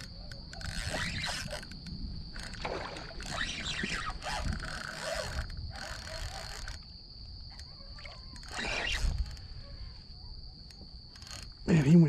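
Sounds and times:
scraping on a kayak: 0:00.6 - 0:01.8, 0:02.4 - 0:06.9, 0:08.0 - 0:09.7
water splashing: 0:02.5 - 0:04.2.

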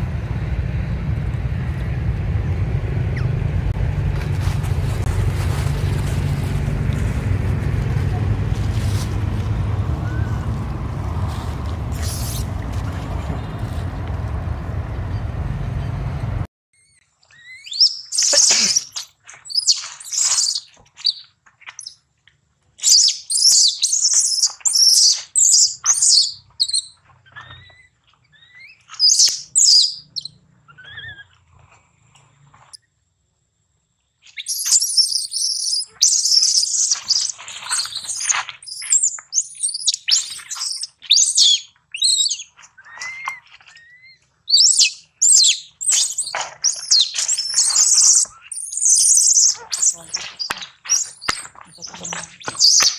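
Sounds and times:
steady rushing noise: 0:00.0 - 0:16.5
baby monkey squeaky cries: 0:16.8 - 0:21.2, 0:22.8 - 0:31.3, 0:34.4 - 0:52.9.

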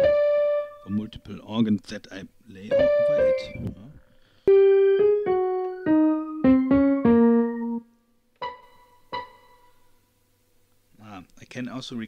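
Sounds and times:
keyboard with organ tone: 0:00.0 - 0:01.0, 0:02.7 - 0:03.9, 0:04.5 - 0:09.8.

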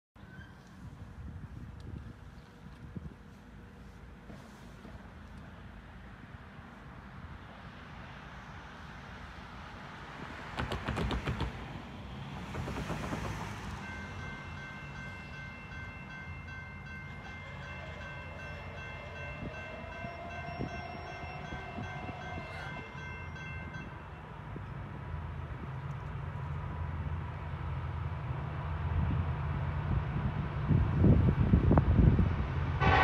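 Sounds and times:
train rumble: 0:00.2 - 0:33.0
locomotive air horn blast: 0:17.1 - 0:23.7, 0:32.8 - 0:33.0.

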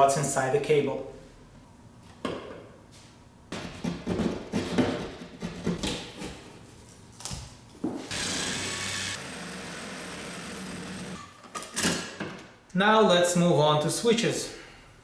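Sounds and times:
cordless drill running: 0:08.1 - 0:11.2.

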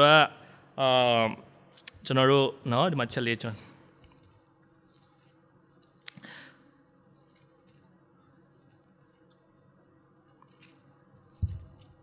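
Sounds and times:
paper rustling: 0:04.0 - 0:06.1, 0:10.2 - 0:12.0.

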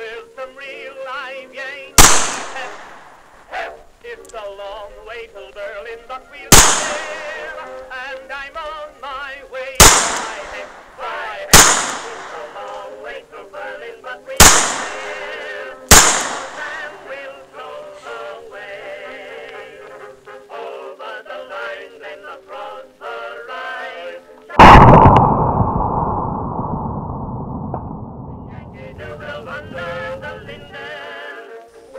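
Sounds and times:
background music: 0:00.0 - 0:24.6, 0:28.9 - 0:31.9
revolver gunshots with echo: 0:02.0 - 0:03.2, 0:06.5 - 0:07.5, 0:09.8 - 0:11.0, 0:11.6 - 0:12.6, 0:14.4 - 0:17.0
loud long blast: 0:24.6 - 0:30.7.

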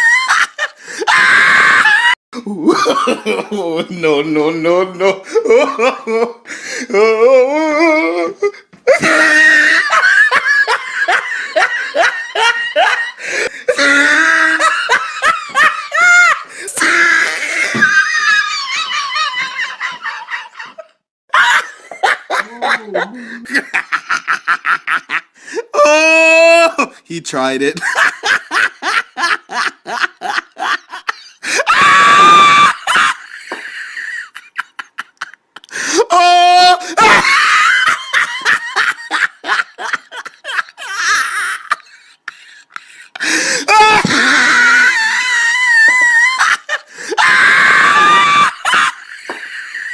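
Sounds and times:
person laughing heartily: 0:00.0 - 0:04.1, 0:05.0 - 0:26.1, 0:27.8 - 0:49.9
high-pitched scream: 0:47.2 - 0:48.7.

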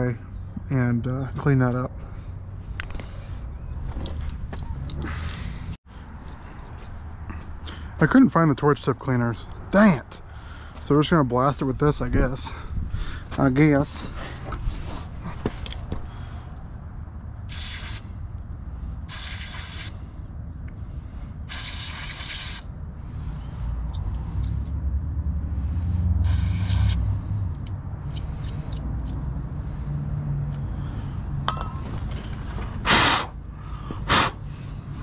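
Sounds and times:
aerosol spray hissing: 0:17.5 - 0:18.0, 0:19.1 - 0:20.0, 0:21.5 - 0:22.6, 0:26.2 - 0:27.0.

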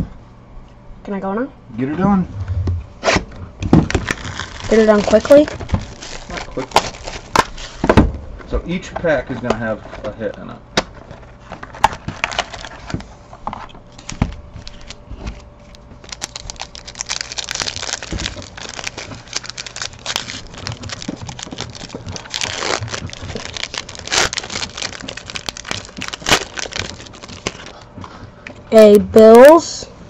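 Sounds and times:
foil wrapper crinkling and tearing: 0:03.8 - 0:07.8, 0:11.0 - 0:13.0, 0:13.6 - 0:27.9.

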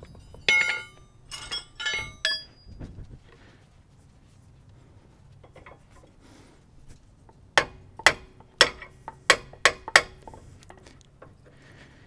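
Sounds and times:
tools clinking: 0:00.0 - 0:02.8, 0:05.4 - 0:06.1
hammer striking metal: 0:00.4 - 0:02.6, 0:07.6 - 0:10.2.

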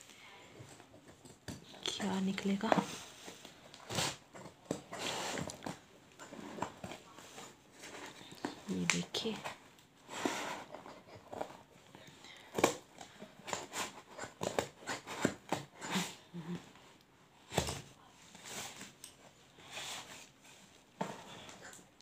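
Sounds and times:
box rustling and knocking: 0:12.5 - 0:15.8
scissors cutting cardboard: 0:13.4 - 0:16.2.

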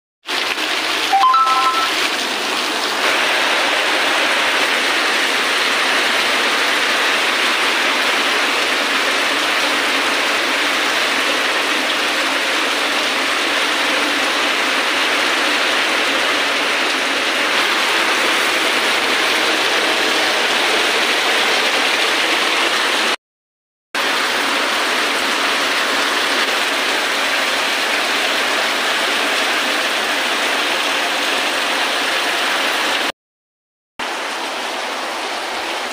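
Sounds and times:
rain on concrete and puddles: 0:00.2 - 0:23.2, 0:24.0 - 0:33.1, 0:34.0 - 0:35.9.

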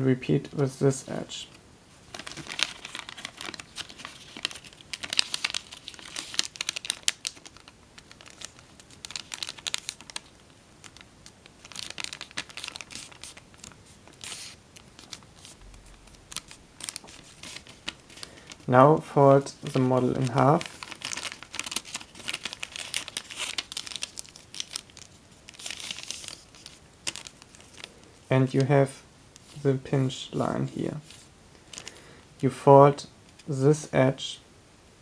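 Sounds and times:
foil crinkling: 0:02.1 - 0:18.7, 0:19.6 - 0:28.2, 0:31.0 - 0:32.0.

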